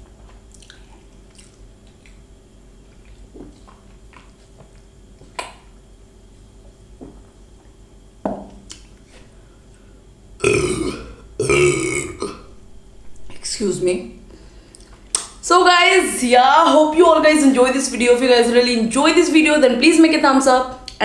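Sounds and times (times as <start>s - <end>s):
woman burping loudly: 10.4s - 12.5s.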